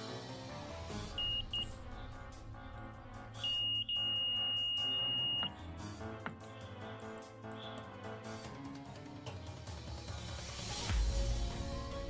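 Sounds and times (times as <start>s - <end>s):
background music: 0.0s - 12.0s
multimeter buzzer beeping: 3.4s - 5.6s.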